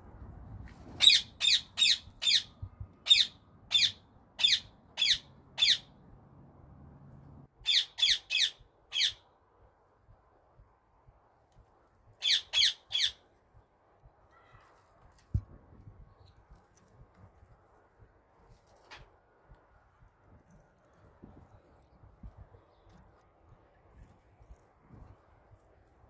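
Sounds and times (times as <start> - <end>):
parakeet squawking: 1.0 - 2.5, 3.1 - 5.9, 7.7 - 9.2, 12.2 - 13.2.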